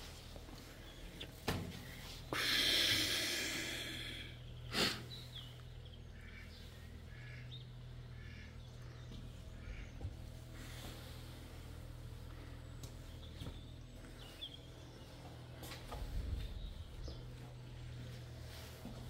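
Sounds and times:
person sniffing: 0:02.3 - 0:05.2.

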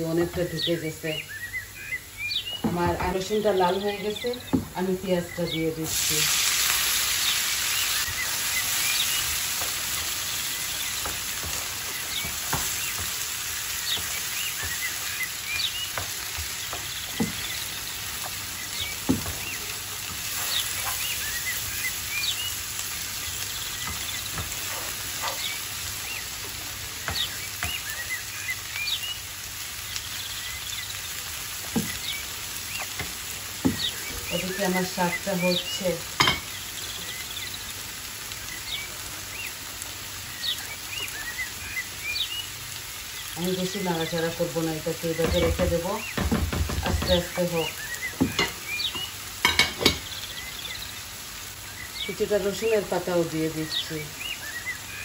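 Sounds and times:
onions sizzling in oil: 0:00.0 - 0:55.0
wooden spoon knocking and scraping: 0:10.8 - 0:13.2, 0:19.0 - 0:21.2, 0:45.2 - 0:47.4.

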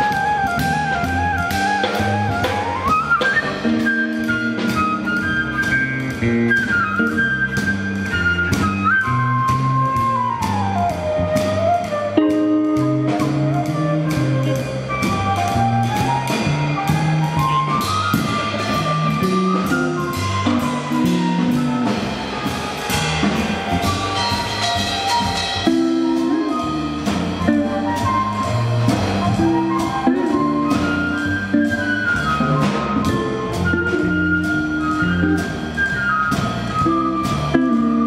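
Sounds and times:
bass guitar line: 0:00.0 - 0:38.0
jazz guitar: 0:00.0 - 0:38.0
drum kit cymbal strokes: 0:17.2 - 0:37.7.

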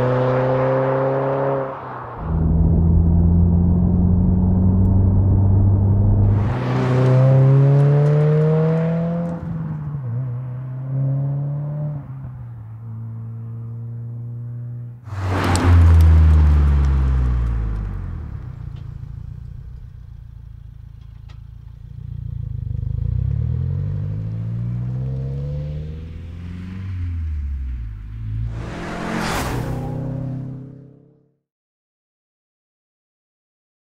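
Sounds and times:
car engine accelerating past: 0:00.0 - 0:09.5, 0:13.1 - 0:18.5, 0:22.4 - 0:31.0.

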